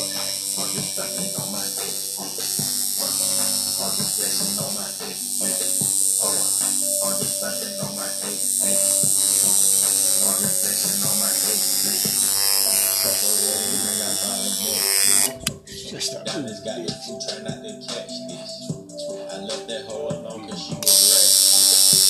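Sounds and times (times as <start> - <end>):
tattoo machine buzzing: 0.0 - 15.5, 20.8 - 22.0.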